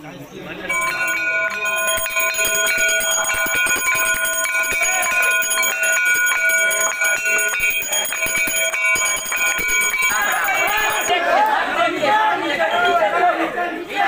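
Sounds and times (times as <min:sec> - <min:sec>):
brass hand bells ringing: 0:00.7 - 0:11.2, 0:12.6 - 0:13.6.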